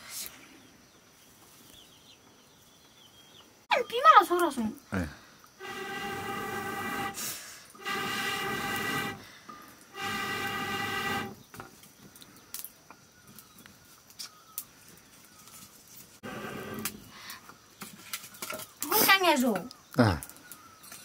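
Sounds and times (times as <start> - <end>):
horn blasts: 5.6 - 7.2, 7.8 - 9.2, 10.0 - 11.4
wood fire crackling: 5.6 - 20.6.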